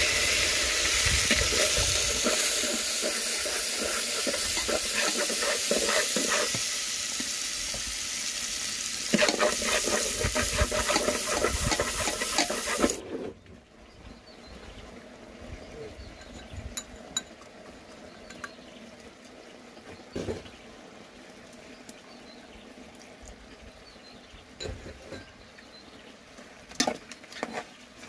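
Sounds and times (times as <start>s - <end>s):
garlic sizzling in hot oil: 0.0s - 13.0s.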